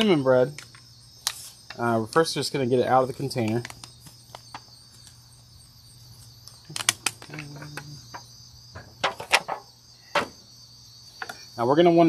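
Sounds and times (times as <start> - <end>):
insect chirring: 0.0 - 12.0.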